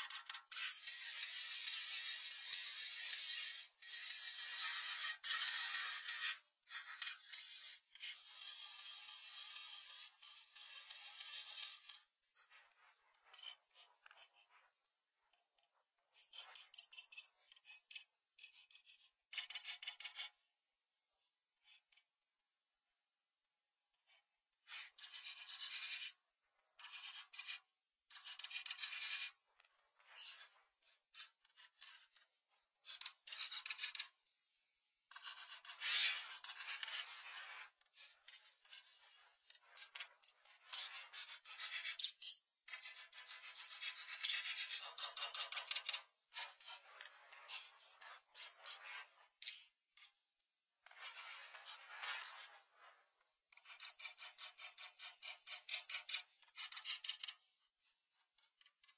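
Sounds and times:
pastel scratching on paper: 0:35.1 - 0:42.0, 0:42.7 - 0:49.6, 0:50.8 - 0:53.0.

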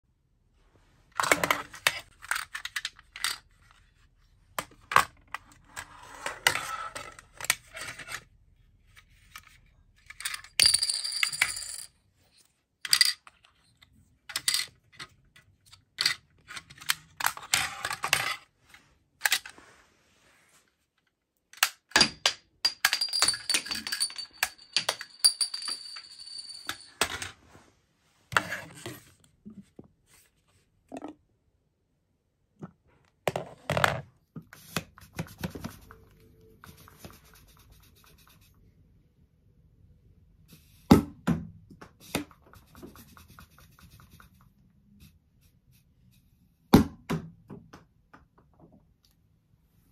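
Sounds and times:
plastic toy clicks and clatter: 0:01.2 - 0:03.4.

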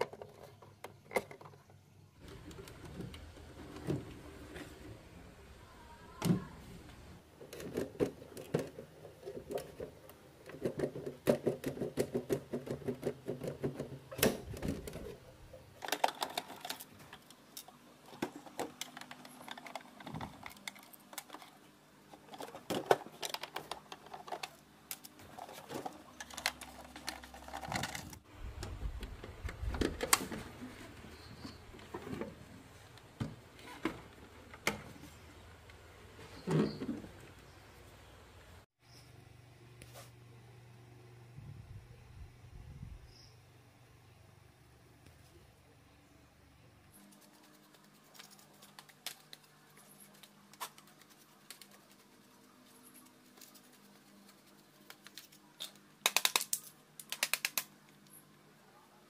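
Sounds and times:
faint steady hum: 0:00.0 - 0:59.0
clicks of small hard parts: 0:55.1 - 0:58.2.

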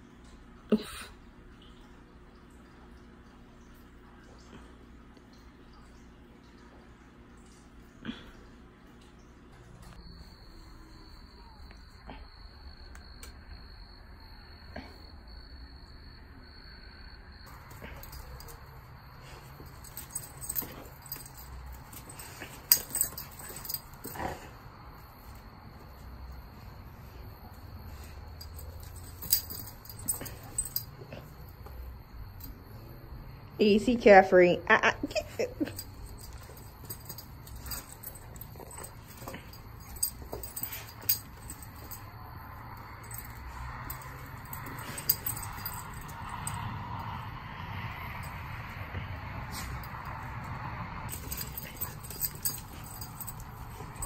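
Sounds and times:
dogs scuffling: 0:17.5 - 0:24.5, 0:35.7 - 0:46.6, 0:51.1 - 0:54.0.

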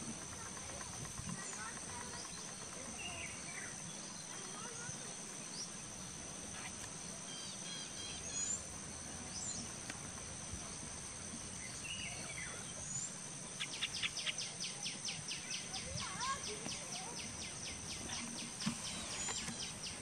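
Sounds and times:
bird chirps: 0:11.6 - 0:20.0.

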